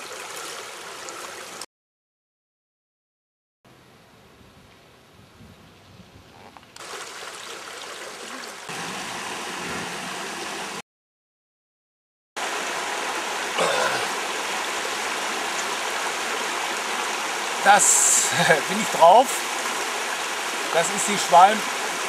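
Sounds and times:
river water rushing: 0:06.8 - 0:10.8, 0:12.4 - 0:22.0.

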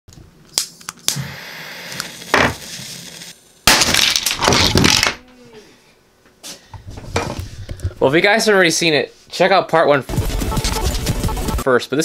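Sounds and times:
crash of smashing: 0:03.7 - 0:05.2.

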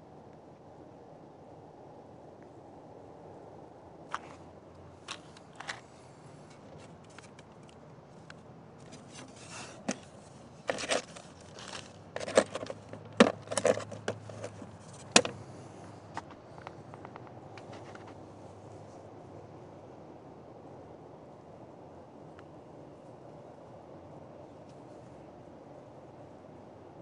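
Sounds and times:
handling noise clicks and scrapes: 0:04.1 - 0:04.4, 0:05.0 - 0:18.2.

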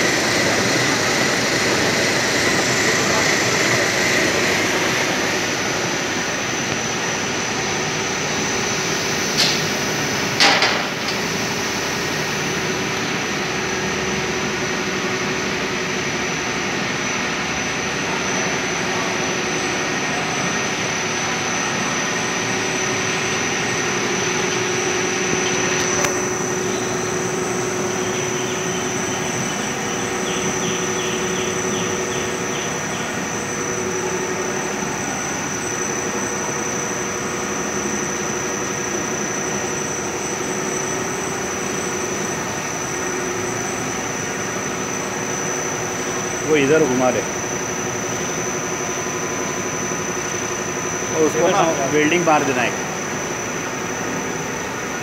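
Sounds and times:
printing machine whine and hum: 0:00.0 - 0:55.0
sharp mechanical knocks: 0:09.4 - 0:09.8, 0:10.4 - 0:11.5.

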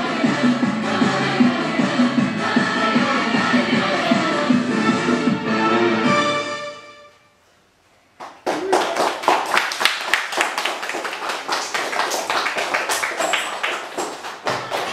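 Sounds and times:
children clapping: 0:08.2 - 0:14.9.

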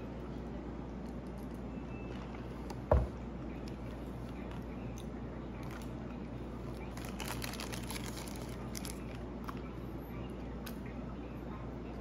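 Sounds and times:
steady low hum: 0:00.0 - 0:12.0
paper wrapper crinkling: 0:06.9 - 0:09.2.

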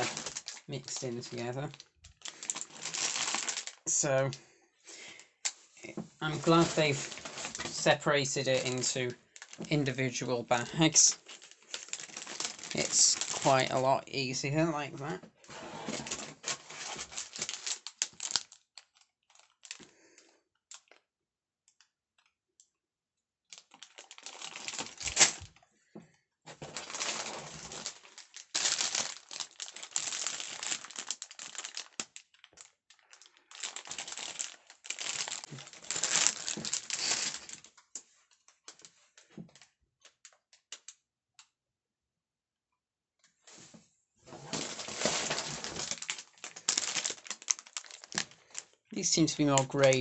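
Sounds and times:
plastic bags crinkling: 0:00.0 - 0:04.4, 0:06.2 - 0:19.9, 0:23.5 - 0:25.6, 0:26.5 - 0:37.9, 0:44.3 - 0:50.0.

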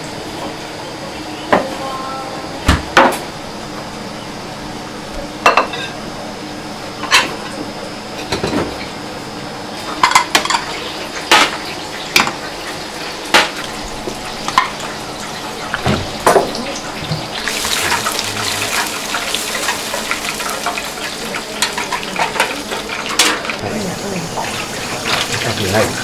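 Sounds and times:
oil sizzling in deep fryer: 0:00.0 - 0:26.0
kitchen utensils and dishes clinking: 0:05.4 - 0:06.0, 0:08.2 - 0:08.9, 0:09.8 - 0:26.0.

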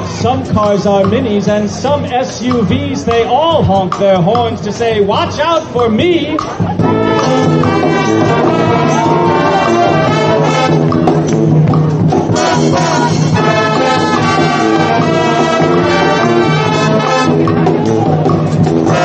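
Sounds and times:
brass band playing: 0:06.6 - 0:19.0.

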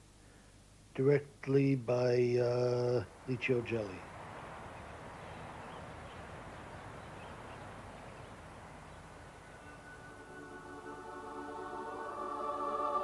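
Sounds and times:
steady background hiss: 0:00.0 - 0:13.0
music with held tones: 0:08.6 - 0:13.0.

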